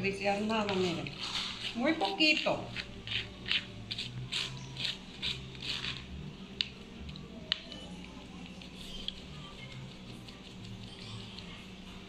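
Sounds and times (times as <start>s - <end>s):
spoon scraping mesh strainer: 0.9s - 6.0s.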